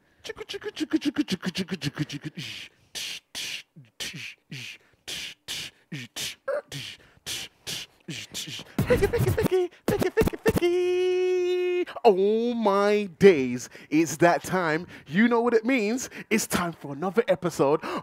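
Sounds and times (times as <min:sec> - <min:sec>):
person beatboxing: 0:00.1 - 0:11.2.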